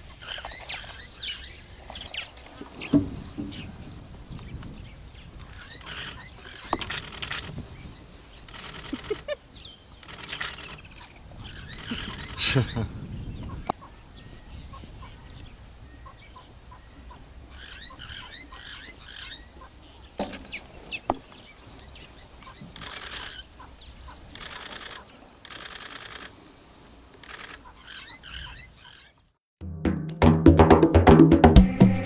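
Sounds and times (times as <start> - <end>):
small birds chirping: 0.0 - 29.4
sharp clicks: 5.4 - 7.6, 8.5 - 9.4, 10.0 - 10.9, 24.3 - 26.3.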